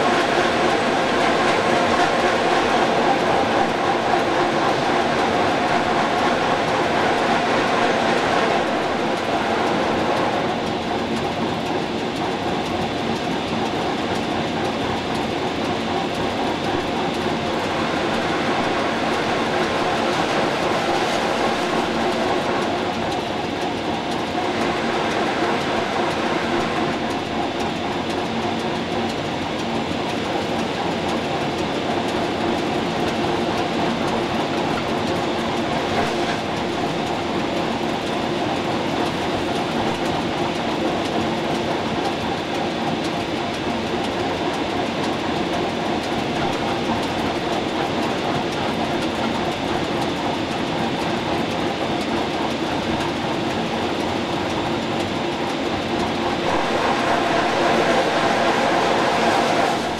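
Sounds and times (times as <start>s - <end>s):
train wheels on rails: 0.0s - 59.9s
locomotive hum: 55.5s - 59.9s.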